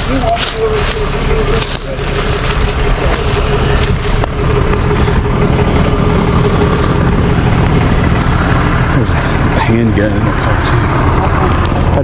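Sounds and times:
truck engine running: 0.0s - 12.0s.

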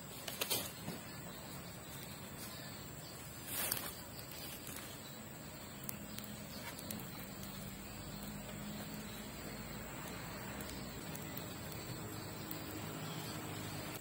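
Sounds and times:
rustle: 0.0s - 9.6s
forest ambience: 0.0s - 14.0s
high-pitched insect drone: 6.9s - 14.0s.

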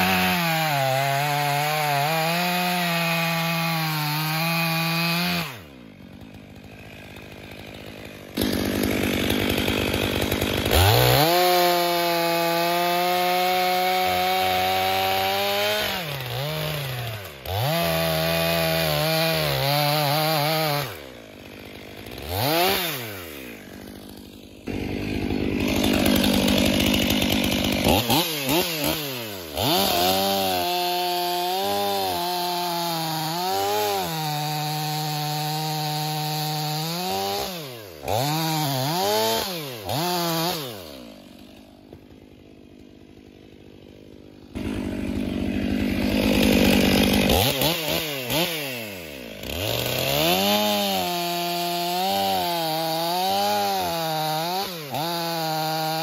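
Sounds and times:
chainsaw cutting logs: 0.0s - 56.0s.

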